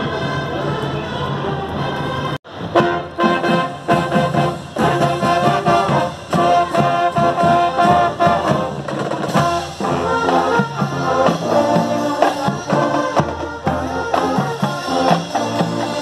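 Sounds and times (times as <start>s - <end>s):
brass held notes: 0.0s - 16.0s
steady drumbeat: 2.5s - 16.0s.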